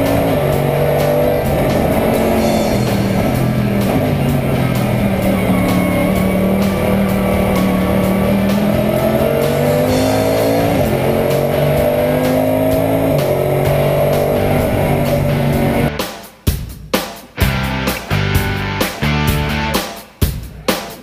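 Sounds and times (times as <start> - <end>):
race car engine accelerating: 0.0 - 16.0.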